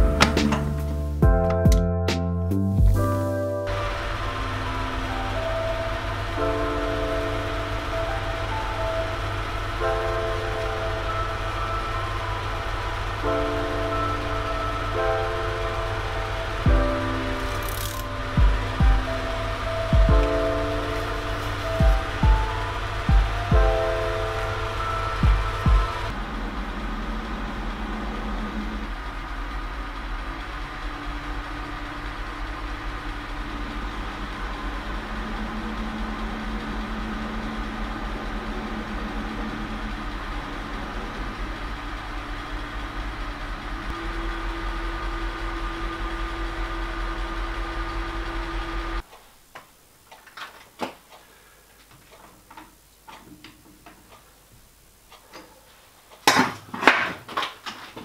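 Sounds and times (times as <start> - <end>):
gear tones: 2.7 - 49.1
metal lathe running: 3.6 - 49.0.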